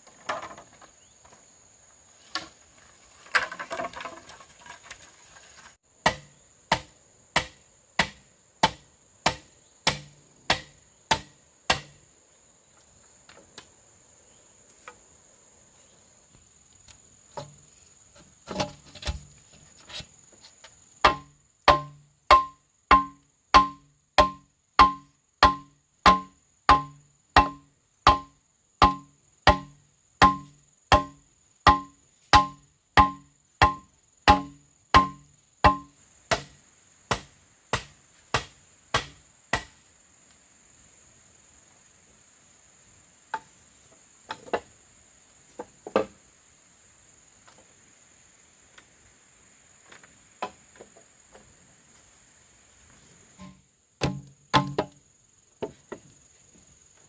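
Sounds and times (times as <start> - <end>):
high insect drone: 0.0 - 57.0
hollow knocks on bamboo: 6.0 - 12.0, 17.3 - 17.6, 18.2 - 20.1, 21.0 - 39.8, 43.3 - 43.6, 44.3 - 44.7, 45.5 - 46.2, 50.0 - 51.4, 53.4 - 55.0, 55.6 - 56.1.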